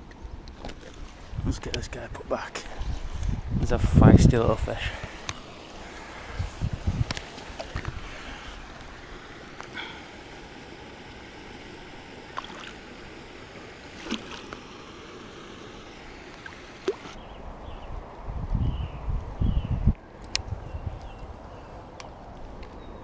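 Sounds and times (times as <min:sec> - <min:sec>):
watery hiss: 0:04.7 - 0:17.2
water sloshing and splashing: 0:12.2 - 0:12.9, 0:13.9 - 0:14.7, 0:16.3 - 0:17.2.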